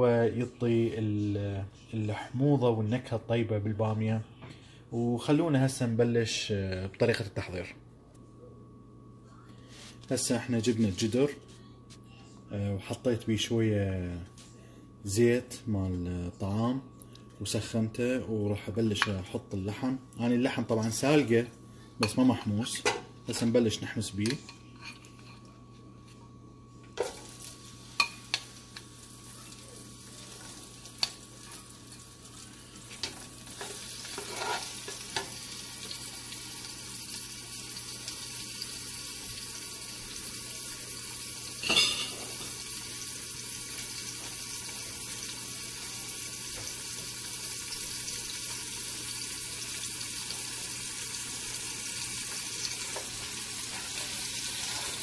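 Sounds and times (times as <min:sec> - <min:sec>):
meat sizzling in hot oil: 0:27.1 - 0:55.0.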